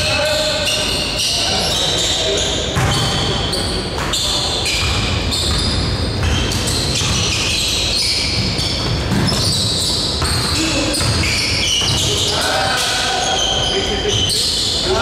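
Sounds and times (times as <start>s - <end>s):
players' voices: 0.0s - 5.7s, 10.2s - 15.0s
sneakers squeaking: 0.0s - 15.0s
basketball bouncing on wooden floor: 4.7s - 12.3s.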